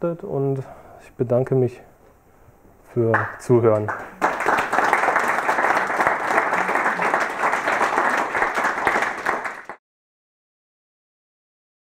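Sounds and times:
audience applauding: 3.2 - 9.8.

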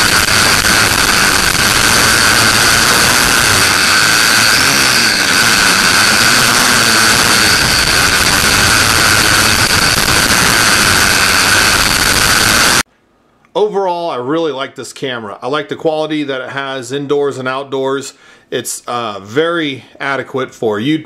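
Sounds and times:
broad rushing noise: 0.0 - 12.8
drone propellers whining: 0.0 - 12.8.

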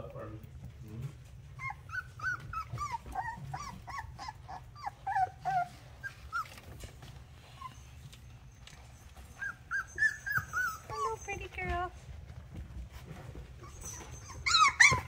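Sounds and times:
puppies whimpering: 1.4 - 8.2, 8.8 - 11.5, 13.5 - 15.0.

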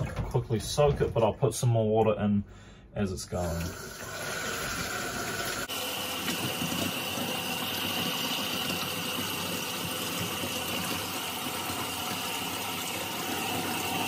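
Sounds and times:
tap running into sink: 4.7 - 14.0.

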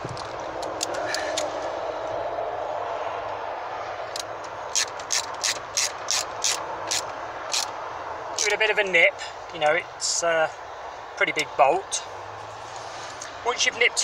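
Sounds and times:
ratchet clicking: 4.1 - 7.8
background construction noise: 4.1 - 10.2.

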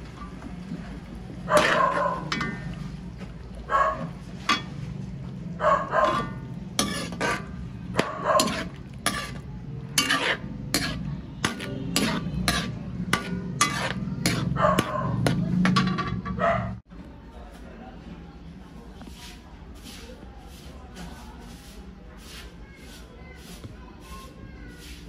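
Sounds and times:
spatula scraping a wok: 1.4 - 3.0, 4.0 - 16.4, 19.1 - 25.0
dog barking: 1.5 - 2.3, 3.7 - 4.1, 5.6 - 6.4, 8.0 - 8.6, 14.5 - 15.2, 16.4 - 16.8.

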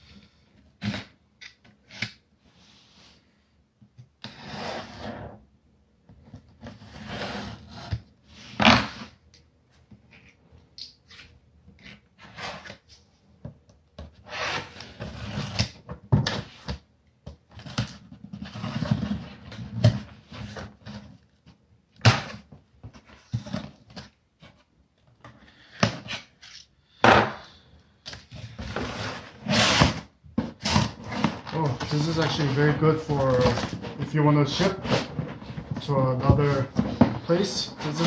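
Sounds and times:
tape and cardboard tearing: 29.4 - 31.3.

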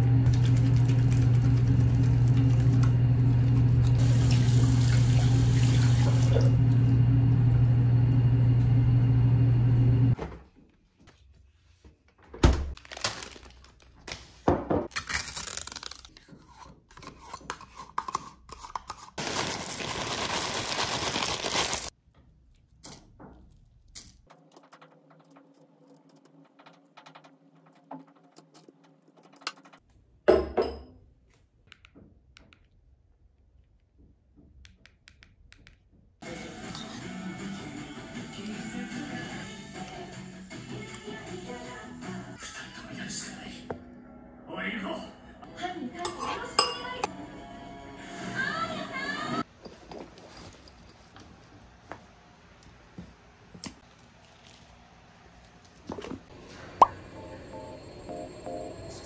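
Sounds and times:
tap water running into sink: 0.2 - 6.8
cereal pouring into bowl: 19.2 - 21.9.

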